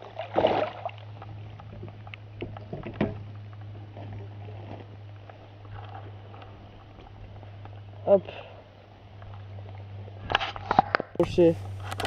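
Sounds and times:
fish splashing in water: 0:00.0 - 0:07.6
low hum: 0:00.0 - 0:12.0.

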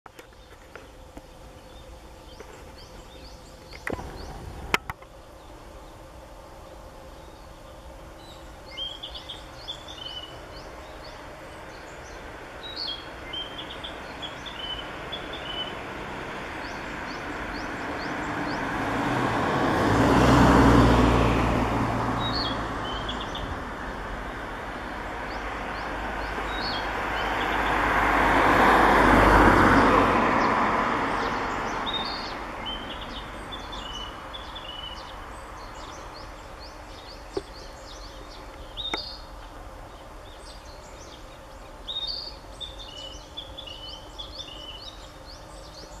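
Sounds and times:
small songbirds singing: 0:00.1 - 0:46.0
vehicles passing: 0:00.1 - 0:46.0.

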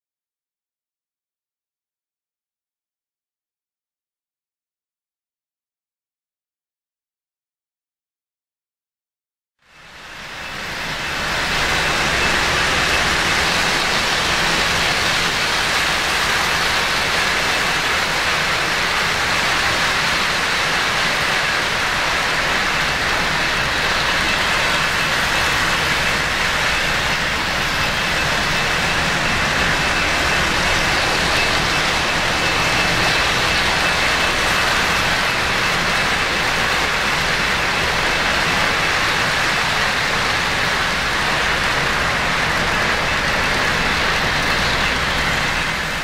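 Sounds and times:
model train wheels rumbling on track: 0:09.7 - 0:46.0.

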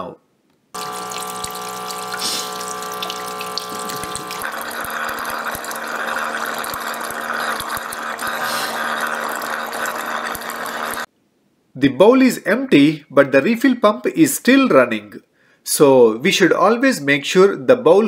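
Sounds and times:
water pump humming: 0:00.8 - 0:11.1
water splashing: 0:00.8 - 0:11.1.

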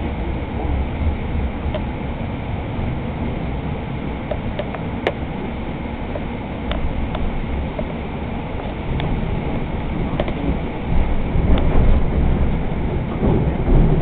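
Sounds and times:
train car rumbling on track: 0:00.0 - 0:14.0
sharp track clicks: 0:04.2 - 0:05.3, 0:06.1 - 0:08.0, 0:10.1 - 0:10.7.

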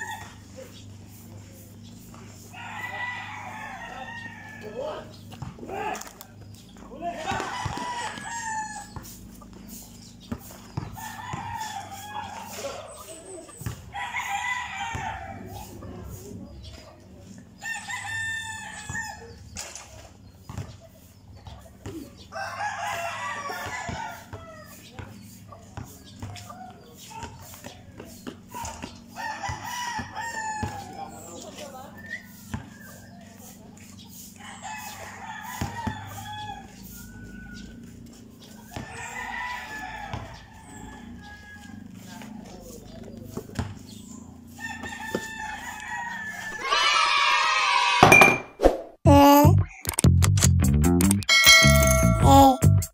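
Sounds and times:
rooster crowing: 0:00.0 - 0:00.8, 0:02.4 - 0:05.1, 0:07.0 - 0:09.2, 0:10.8 - 0:15.7, 0:17.6 - 0:19.3, 0:22.3 - 0:25.1, 0:28.6 - 0:31.6, 0:34.4 - 0:42.6, 0:44.5 - 0:48.2
basketball bouncing on concrete: 0:05.1 - 0:11.7, 0:13.6 - 0:14.0, 0:20.2 - 0:22.2, 0:23.6 - 0:31.1, 0:32.4 - 0:32.8, 0:35.6 - 0:36.1, 0:40.1 - 0:40.8, 0:43.2 - 0:44.0, 0:44.8 - 0:45.4, 0:48.0 - 0:48.5.

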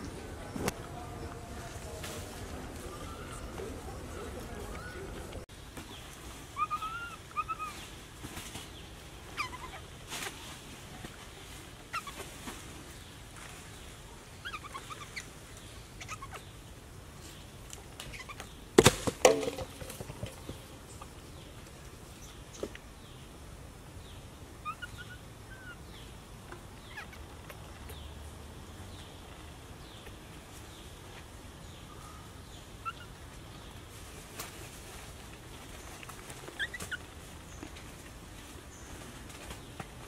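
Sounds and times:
faint chirping calls: 0:00.0 - 0:10.6, 0:11.3 - 0:18.7, 0:24.0 - 0:33.9, 0:34.9 - 0:40.0.

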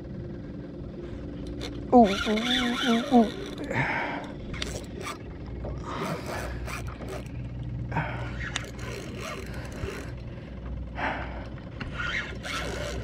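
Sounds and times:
fishing reel cranking: 0:01.4 - 0:05.2, 0:05.8 - 0:07.5, 0:08.2 - 0:10.3, 0:11.9 - 0:13.0
low rumble: 0:03.2 - 0:12.5.

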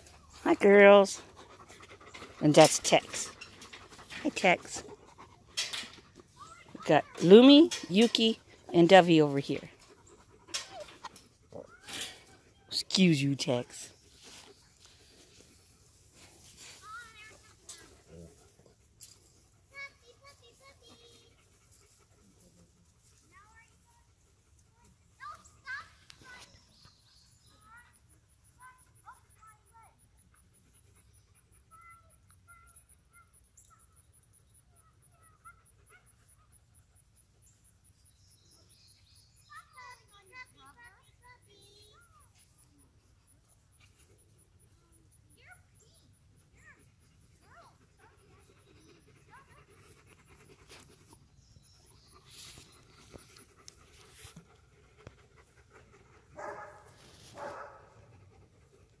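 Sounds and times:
dog panting: 0:00.0 - 0:08.8, 0:09.6 - 0:12.6, 0:16.8 - 0:25.2, 0:46.4 - 0:59.0.

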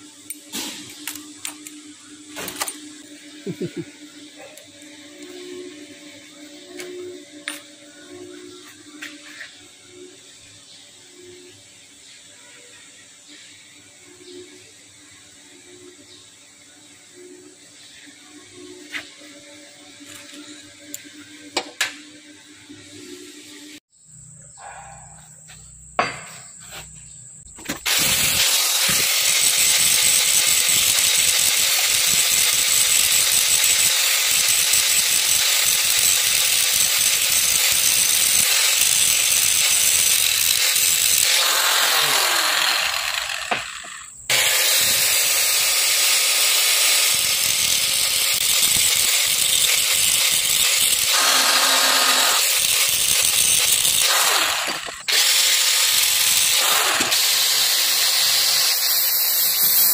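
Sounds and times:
angle grinder grinding metal: 0:00.0 - 0:10.1, 0:27.7 - 0:59.9.

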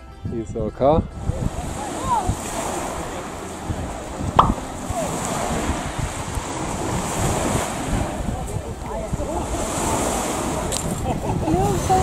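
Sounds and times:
wind buffeting microphone: 0:00.0 - 0:12.0
waves washing in: 0:01.2 - 0:12.0
sharp knock: 0:04.4 - 0:04.6.

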